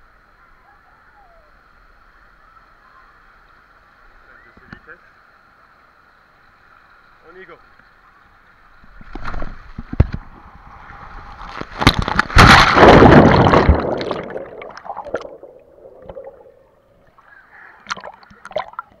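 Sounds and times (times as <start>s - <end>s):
rushing water: 1.6s - 19.0s
loud splash into pool: 10.7s - 16.4s
water sloshing: 10.8s - 17.2s
muffled underwater gurgling: 12.2s - 16.8s.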